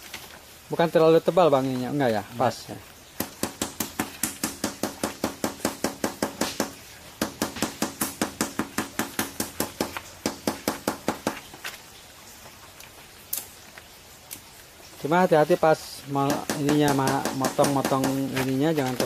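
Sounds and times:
hammer tapping plastic pipe rim: 0:03.2 - 0:11.4, 0:16.2 - 0:19.0.

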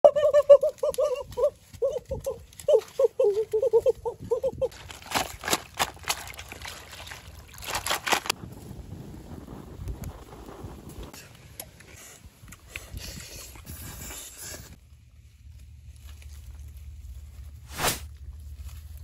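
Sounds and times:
hands digging through mud and twigs: 0:04.6 - 0:08.4.

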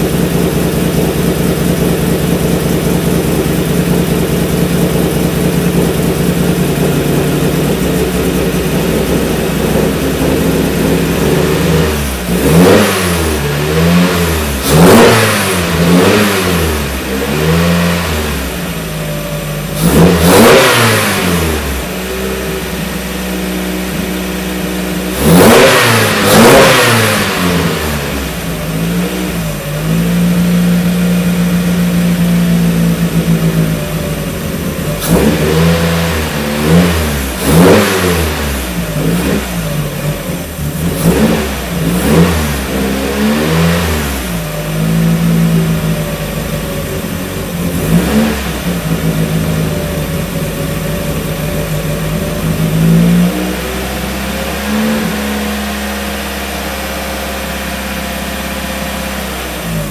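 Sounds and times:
car engine idling and revving: 0:00.0 - 0:59.9.

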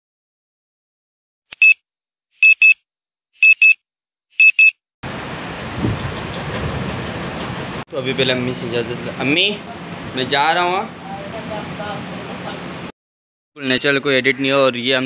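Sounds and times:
electronic alarm double beeps: 0:01.6 - 0:01.8, 0:02.4 - 0:02.8, 0:03.4 - 0:03.8, 0:04.4 - 0:04.8.

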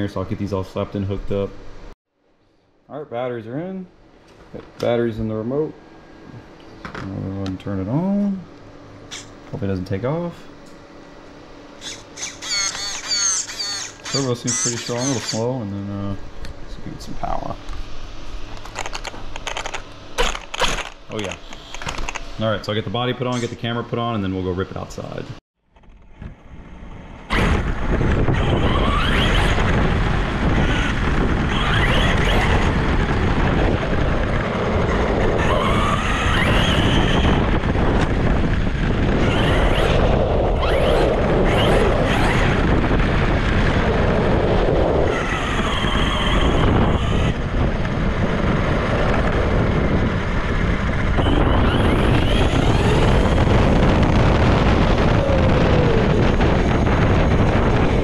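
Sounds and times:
electric motor whine: 0:11.8 - 0:22.4, 0:26.2 - 0:58.0
wind on microphone: 0:26.4 - 0:58.0.

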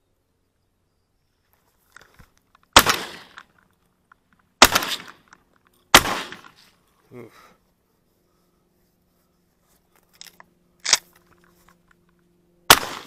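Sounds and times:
shotgun shots with echo: 0:02.8 - 0:03.4, 0:04.6 - 0:05.2, 0:05.9 - 0:06.6, 0:12.7 - 0:13.0
faint rustles: 0:05.2 - 0:12.3.

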